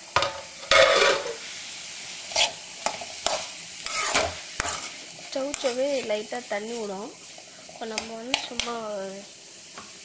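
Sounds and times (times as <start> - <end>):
frying sizzle: 0.0 - 10.0
metal spatula scraping a pan: 0.6 - 1.4, 2.3 - 5.8.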